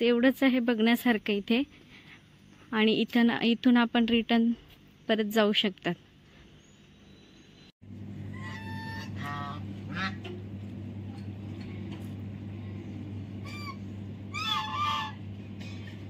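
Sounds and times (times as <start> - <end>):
steady low hum: 7.8 - 16.0
geese honking: 8.3 - 10.3, 13.4 - 15.2.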